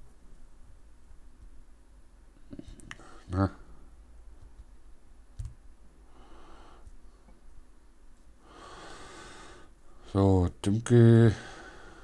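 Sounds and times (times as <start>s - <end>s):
faint breaths: 6.0s - 7.4s, 8.4s - 10.2s, 11.2s - 12.0s.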